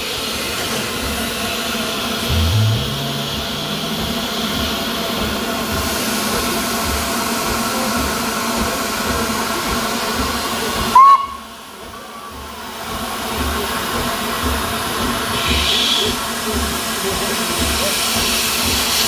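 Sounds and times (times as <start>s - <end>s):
steam locomotive whistle toot: 10.9s - 11.5s, 15.3s - 16.2s.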